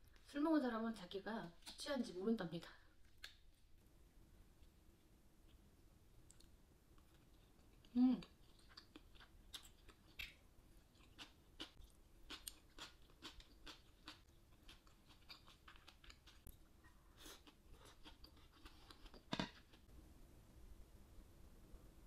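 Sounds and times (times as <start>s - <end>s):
person chewing food: 6.3s - 19.8s.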